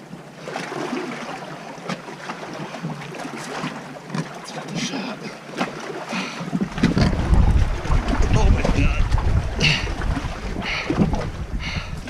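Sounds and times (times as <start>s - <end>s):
fish croaking grunts: 6.0s - 12.0s
wind on microphone: 6.6s - 12.0s.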